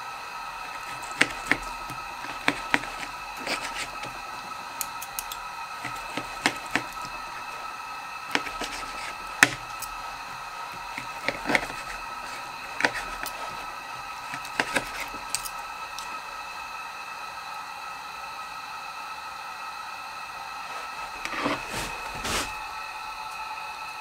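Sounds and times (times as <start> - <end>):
faint high hum: 0.0 - 24.0
cutlery scraping a plate: 0.7 - 4.2, 5.8 - 7.1, 8.3 - 9.9, 10.9 - 13.7, 14.3 - 15.5, 20.7 - 22.5.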